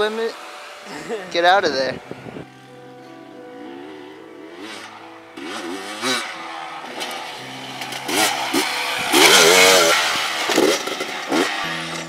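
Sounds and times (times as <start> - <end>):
dirt bike engine revving: 3.5 - 12.0.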